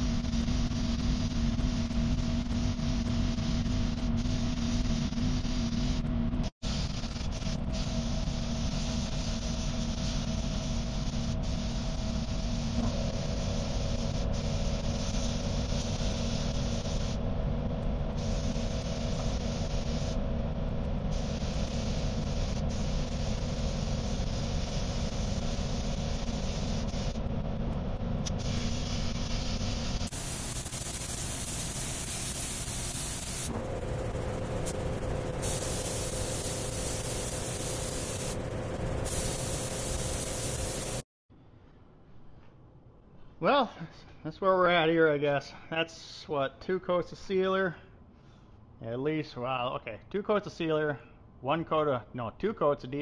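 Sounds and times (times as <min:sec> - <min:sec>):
spray gun hissing: 0:00.0 - 0:17.3, 0:18.1 - 0:20.2, 0:21.0 - 0:27.2, 0:28.2 - 0:41.1
steady low hum: 0:00.0 - 0:47.2.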